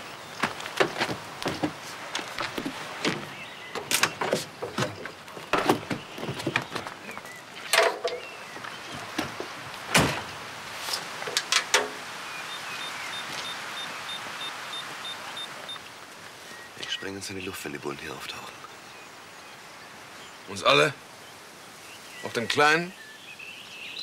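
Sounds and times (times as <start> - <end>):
knocks and clunks on truck: 2.6 - 7.0, 8.9 - 10.4.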